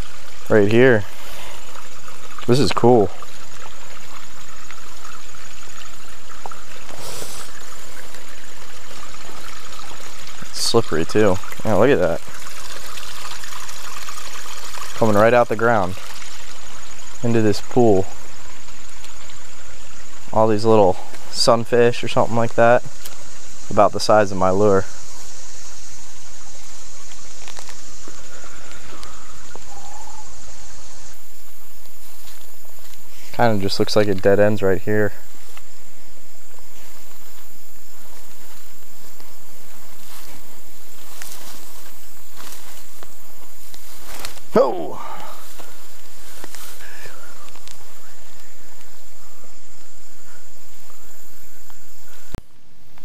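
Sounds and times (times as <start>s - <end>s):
creek water trickling over rock: 0.0s - 50.0s
high insect drone: 0.0s - 53.0s
faint bird calls: 24.8s - 32.2s, 44.0s - 52.4s.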